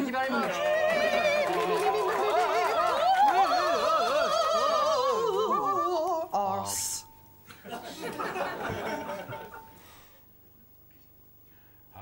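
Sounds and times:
group singing a cappella: 0:00.3 - 0:06.3.

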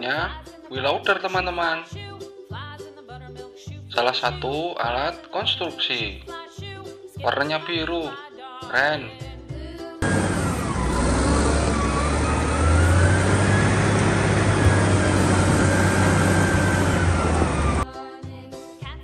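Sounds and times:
wheel loader diesel engine: 0:10.0 - 0:17.8.

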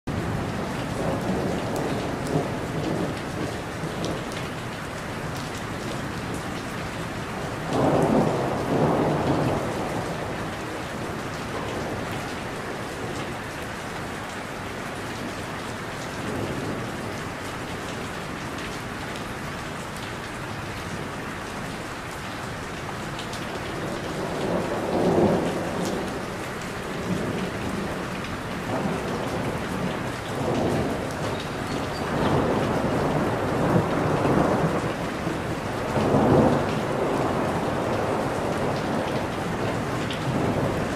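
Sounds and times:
steady rain: 0:00.1 - 0:40.9
rolling thunder: 0:07.6 - 0:13.3, 0:23.8 - 0:40.9.

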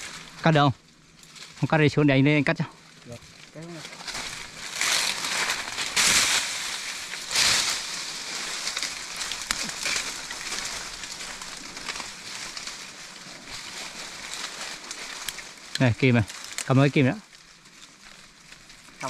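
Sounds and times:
twigs clicking: 0:00.0 - 0:01.7, 0:02.8 - 0:19.0
tree branches rustling and swishing: 0:00.0 - 0:19.0.

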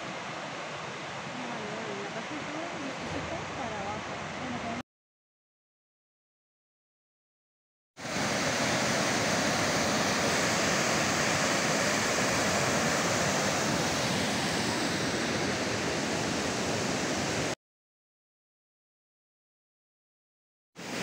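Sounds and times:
waterfall rushing: 0:08.0 - 0:17.6.

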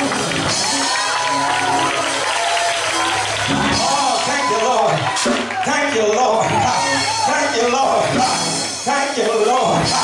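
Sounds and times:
church praise music: 0:00.0 - 0:10.0
man speaking into a microphone: 0:03.7 - 0:10.0.

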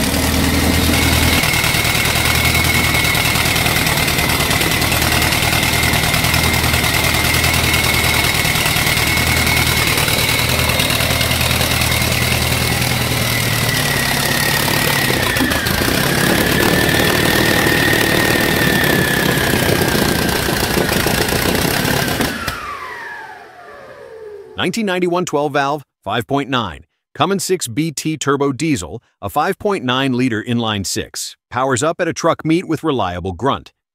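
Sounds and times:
engine running: 0:00.0 - 0:24.6
high turbo whine: 0:00.0 - 0:24.6.

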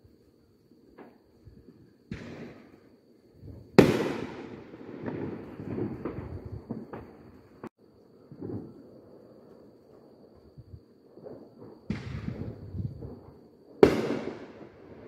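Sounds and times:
firework booms and bangs: 0:02.1 - 0:02.8, 0:03.4 - 0:07.7, 0:11.2 - 0:15.0
firework pops and crackles: 0:02.1 - 0:02.8, 0:03.6 - 0:07.7, 0:11.2 - 0:15.0.

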